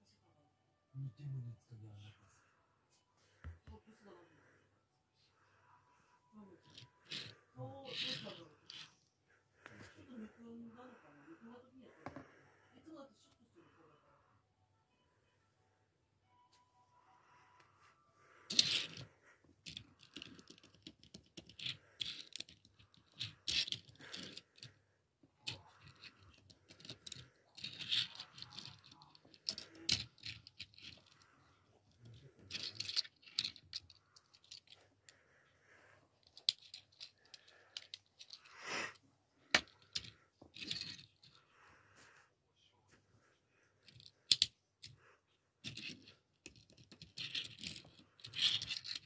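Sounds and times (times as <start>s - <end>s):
toy car clicking and rattling: 6.6s - 8.9s, 18.5s - 24.8s, 25.4s - 34.8s, 36.2s - 38.5s, 39.5s - 41.4s, 43.8s - 45.0s, 45.6s - 49.0s.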